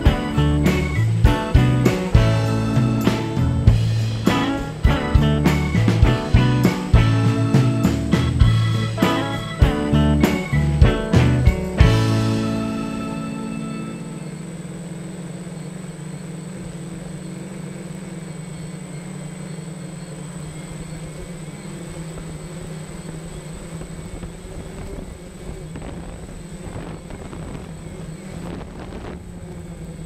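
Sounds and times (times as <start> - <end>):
drone motors humming: 0.0 - 30.0
thin high whine: 0.0 - 30.0
wind buffeting: 23.4 - 30.0.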